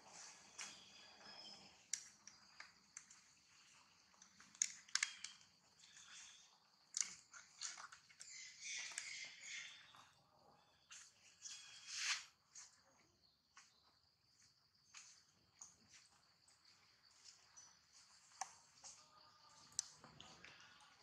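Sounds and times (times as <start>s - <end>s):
soft clicks and rustles: 0.6s - 9.1s.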